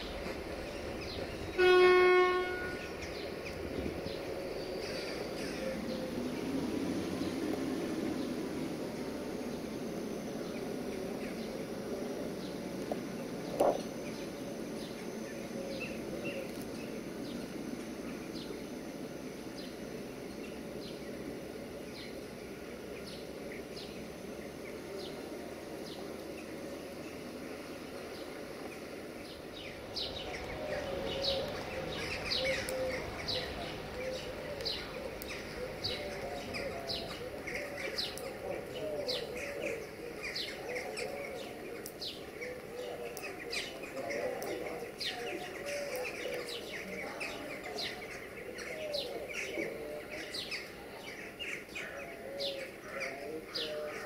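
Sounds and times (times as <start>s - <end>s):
diesel railcar running: 0.0s - 40.7s
small birds chirping: 0.0s - 54.0s.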